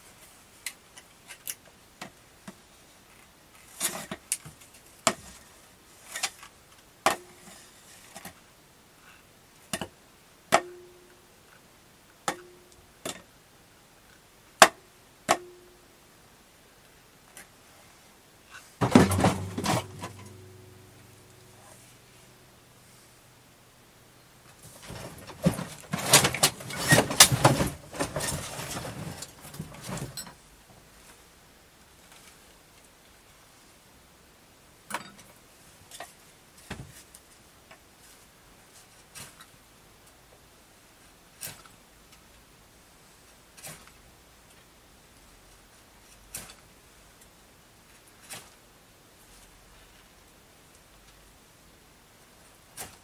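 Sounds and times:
wooden boards knocking and scraping: 18.8s - 20.4s, 24.6s - 30.2s.

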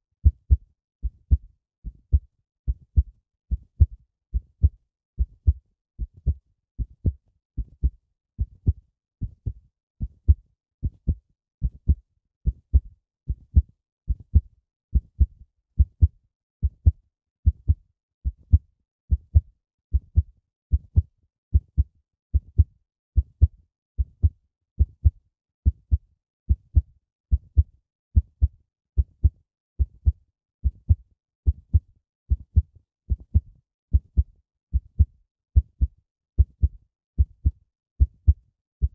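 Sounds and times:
heartbeat thumps: 0.2s - 1.4s, 2.1s - 9.6s, 16.8s - 20.0s, 22.4s - 25.1s.

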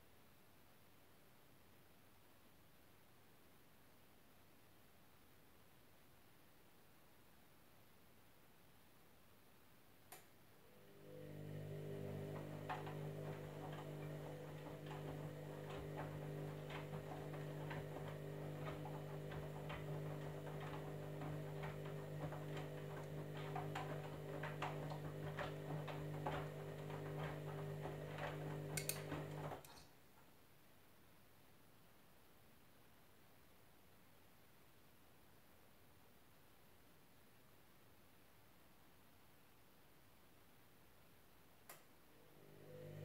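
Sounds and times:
washing machine drum motor humming: 10.7s - 29.7s, 42.2s - 43.0s
wet laundry clicking in drum: 12.1s - 29.7s.

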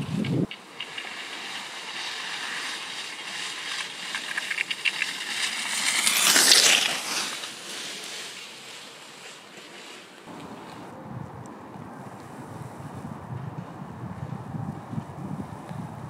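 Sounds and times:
skis swishing on snow: 0.1s - 10.9s.

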